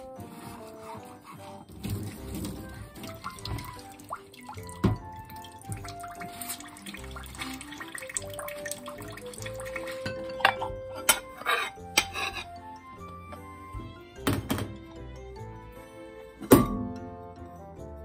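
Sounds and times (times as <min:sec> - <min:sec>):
background music: 0:00.0 - 0:18.0
tap running into a sink: 0:01.9 - 0:10.0
ceramic bowls knocking: 0:08.2 - 0:12.6.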